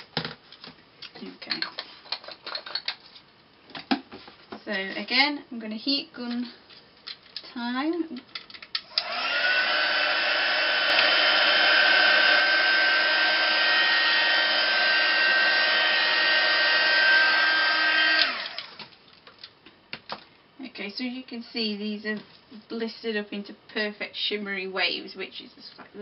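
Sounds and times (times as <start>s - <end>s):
heat gun whirring: 8.8s - 18.9s.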